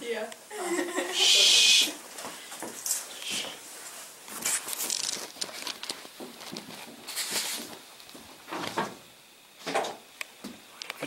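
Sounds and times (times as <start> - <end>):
hissing rustles: 1.0 - 9.3
rustling and scuffing: 2.0 - 9.0.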